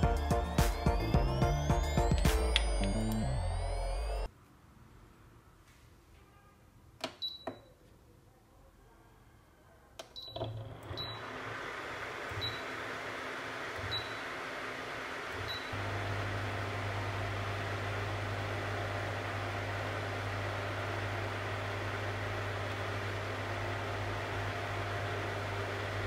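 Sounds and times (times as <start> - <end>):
short control panel beeps: 7.2 - 7.7.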